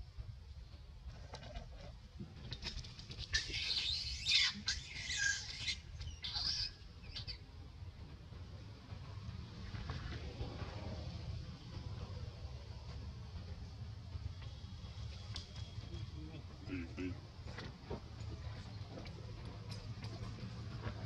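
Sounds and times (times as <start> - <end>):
macaques squealing: 3.2 - 7.4.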